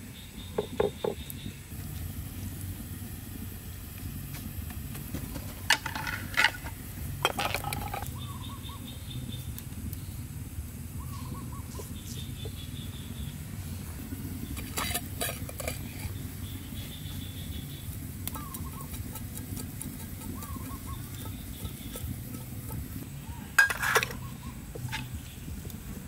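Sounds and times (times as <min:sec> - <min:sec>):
low background rumble: 0:01.2 - 0:26.0
faint bird chirps: 0:07.8 - 0:10.3, 0:10.9 - 0:13.4, 0:16.0 - 0:19.0, 0:20.3 - 0:22.4, 0:23.2 - 0:25.6.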